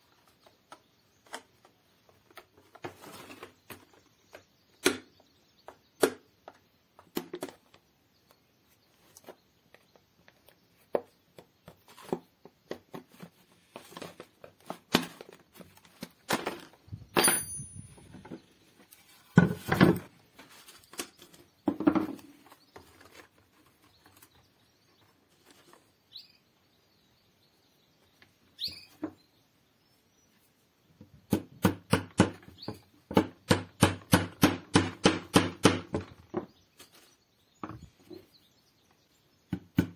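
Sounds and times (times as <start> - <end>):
plastic trays clattering: 11.8 - 17.2.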